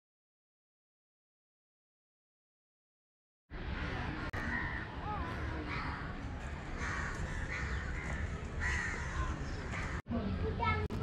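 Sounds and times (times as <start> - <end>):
crows cawing: 4.3 - 10.0.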